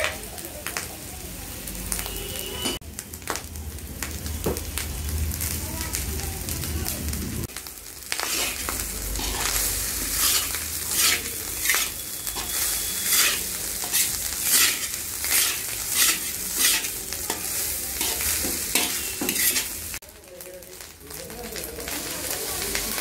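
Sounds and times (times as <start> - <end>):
oil sizzling: 0.0 - 23.0
metal spatula scraping a wok: 8.1 - 20.0.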